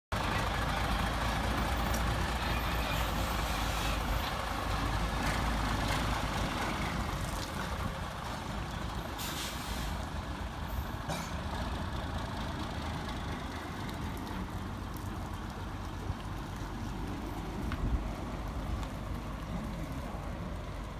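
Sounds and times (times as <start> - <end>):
truck engine rumble: 0.1 - 20.9
air brake hiss: 9.2 - 10.1.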